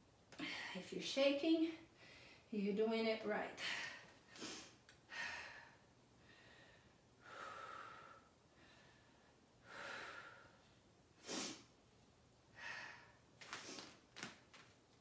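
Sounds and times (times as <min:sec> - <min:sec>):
woman breathing: 0:01.8 - 0:02.6, 0:03.6 - 0:11.7, 0:12.5 - 0:14.0.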